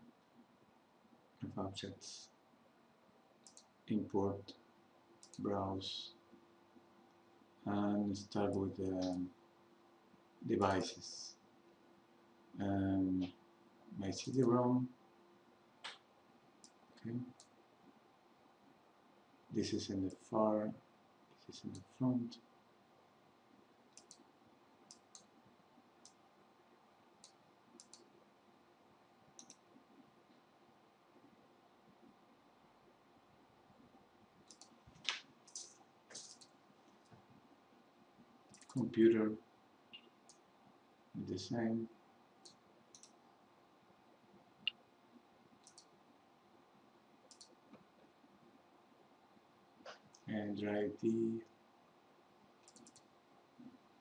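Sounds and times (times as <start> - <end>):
low room hum: 0.0 - 54.0
computer mouse clicks: 3.4 - 3.7, 5.2 - 5.4, 16.6 - 17.6, 23.9 - 24.3, 24.9 - 25.4, 27.2 - 28.2, 29.4 - 29.7, 34.4 - 36.6, 38.5 - 38.8, 42.4 - 43.2, 45.6 - 46.0, 47.2 - 47.9, 52.6 - 53.1.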